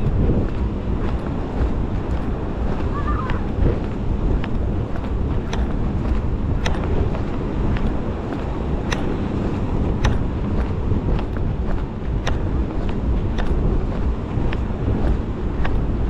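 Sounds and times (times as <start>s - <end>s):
wind buffeting microphone: 0.0s - 16.0s
sharp clicks: 8.8s - 9.2s.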